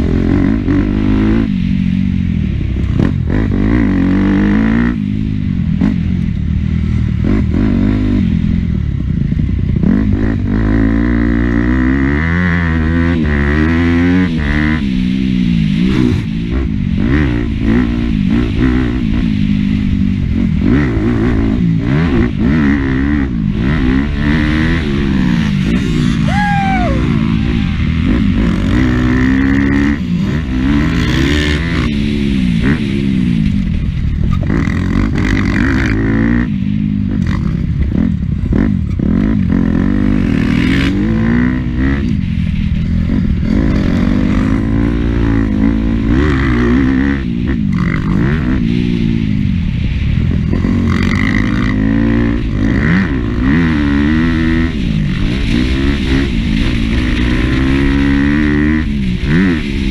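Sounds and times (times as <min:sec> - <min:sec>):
dirt bike engine revving: 0:00.0 - 0:08.7, 0:09.7 - 0:59.9.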